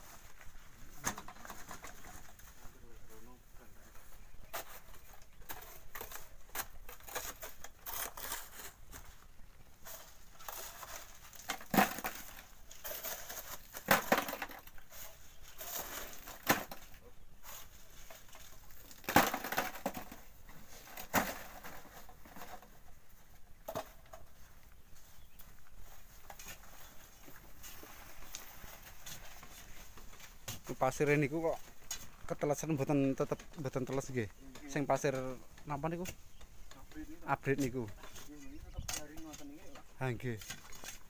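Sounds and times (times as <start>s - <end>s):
shovel scraping sand and gravel: 4.5s - 16.8s.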